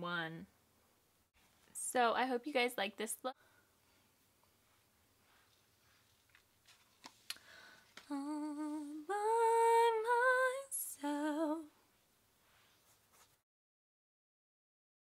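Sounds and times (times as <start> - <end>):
faint clicks and rustles: 3.8 - 8.2.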